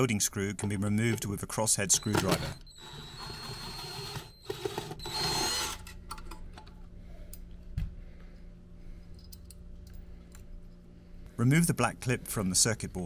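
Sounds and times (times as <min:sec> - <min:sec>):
cordless drill whining: 0:02.0 - 0:05.9.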